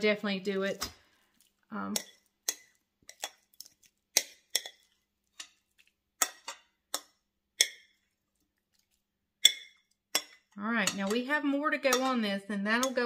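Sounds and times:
metal utensil clinking on glass bowl: 9.4 - 13.0.

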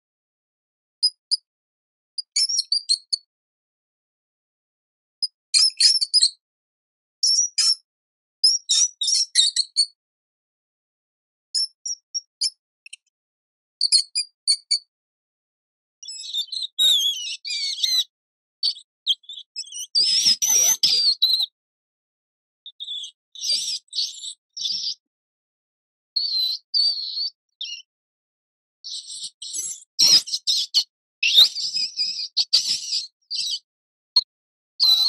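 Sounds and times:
rodent squeaking: 2.2 - 3.2, 5.5 - 6.3, 16.0 - 21.5, 28.9 - 33.6.

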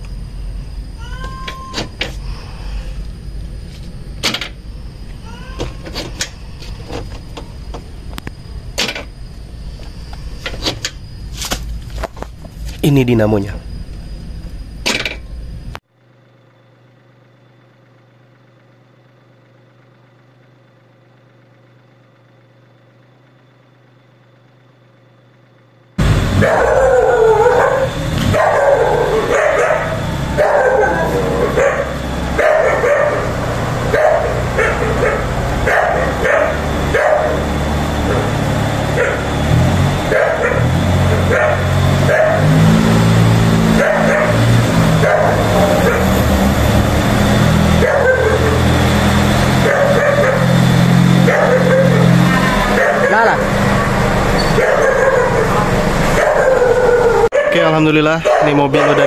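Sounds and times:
animals barking and yelping: 26.3 - 59.0.

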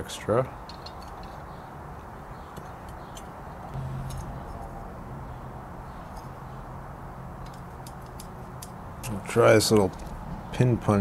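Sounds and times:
low hum: 3.7 - 9.1.

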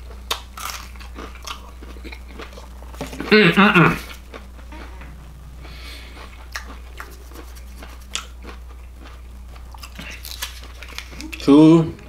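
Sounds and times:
chewing crunchy food: 0.0 - 5.0, 5.6 - 11.5
steady low hum: 0.0 - 12.0
wet mouth clicks: 6.2 - 8.4.

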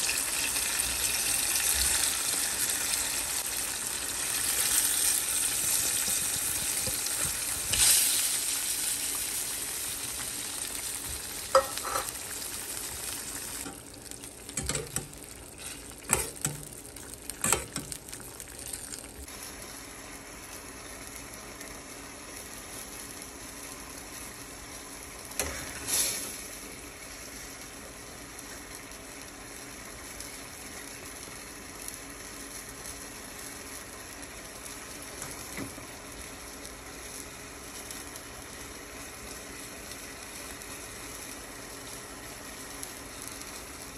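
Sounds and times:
sauce and fish sizzling in a pan: 0.0 - 43.9
metal spoon scraping a pan: 11.5 - 12.2.

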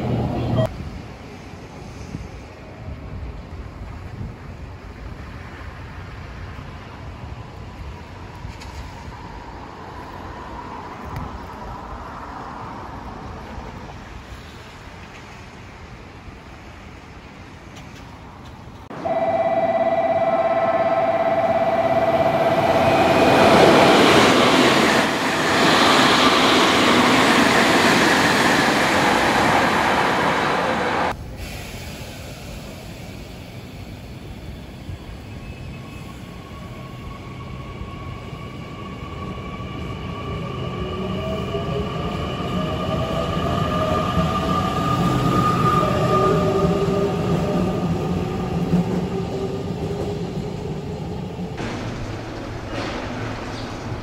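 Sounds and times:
warning tones: 18.9 - 24.8
electric train whine: 18.9 - 54.0
train rushing past: 18.9 - 54.0.

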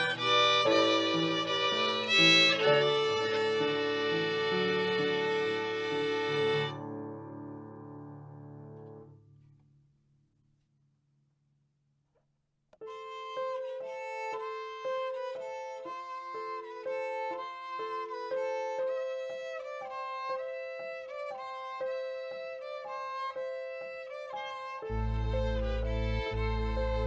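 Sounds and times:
instrumental melody: 0.0 - 9.6, 12.8 - 27.0
deep bass part: 24.9 - 27.0.

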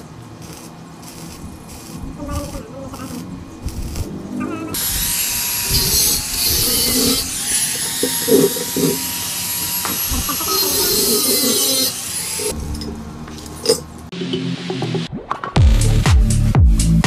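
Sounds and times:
angle grinder grinding metal: 0.4 - 14.0.

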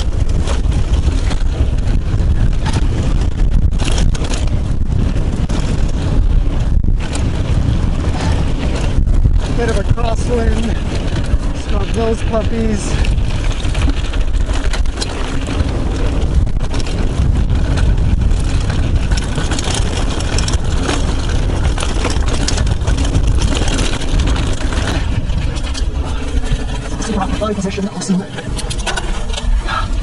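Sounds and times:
bike rattling over rocks: 0.0 - 30.0
wind rumble on microphone: 0.0 - 30.0
tyres crunching over gravel: 7.6 - 30.0.

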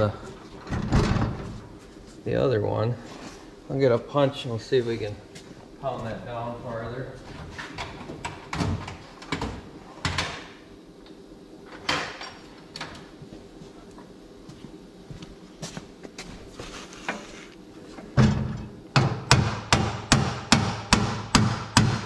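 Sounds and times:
hammer striking steel punch: 19.0 - 22.0.

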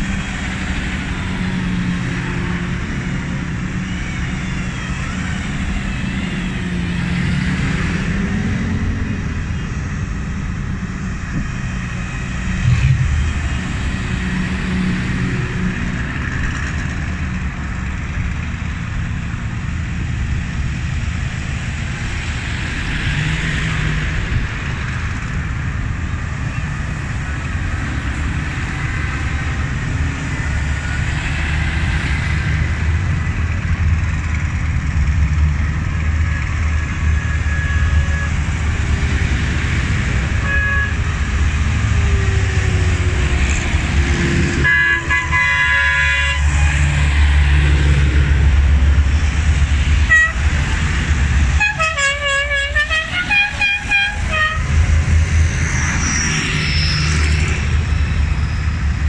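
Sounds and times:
tractor engines rumbling: 0.0 - 59.0
horn tooting rising and falling: 36.3 - 38.9, 40.1 - 48.5, 49.9 - 55.0
horn sounding: 40.2 - 41.4, 44.5 - 47.1, 50.0 - 50.7, 51.4 - 54.8.

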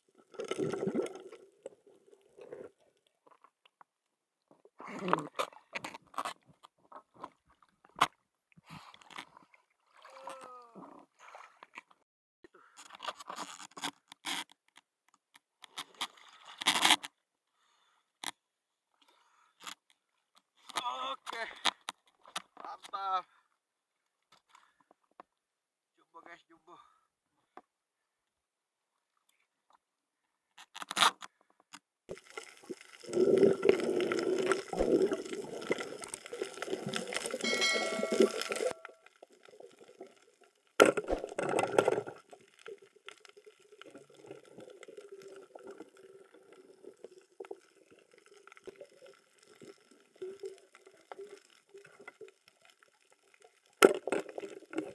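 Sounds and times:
water gurgling and sloshing: 0.0 - 3.6, 32.1 - 54.9.

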